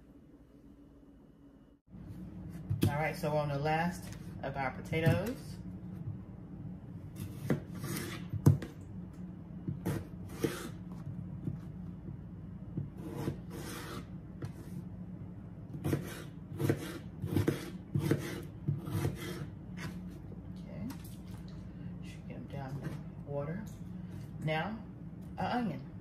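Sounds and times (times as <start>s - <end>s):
knife dicing potatoes on board: 9.8s - 10.8s, 12.7s - 14.7s, 15.7s - 20.0s.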